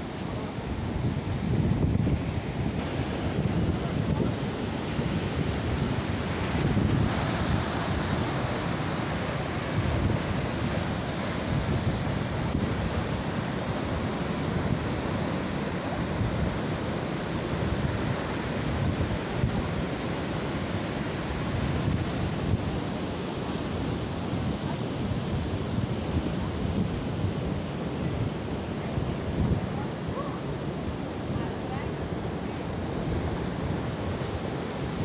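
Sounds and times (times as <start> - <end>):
sea surf breaking on beach: 0.0 - 35.0
wind buffeting microphone: 0.3 - 8.9.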